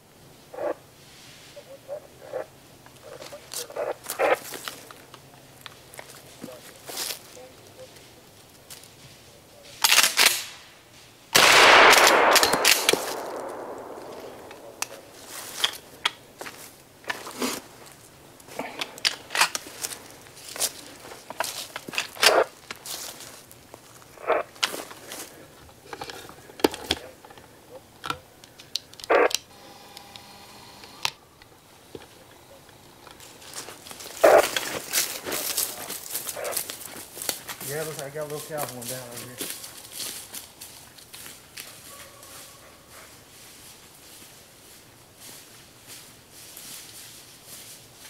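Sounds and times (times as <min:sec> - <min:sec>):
sharp metallic clicks: 0:11.4 - 0:15.0
shotgun shot: 0:11.4 - 0:15.0
handling knocks and clicks: 0:25.8 - 0:29.1
dog barking: 0:41.6 - 0:43.1.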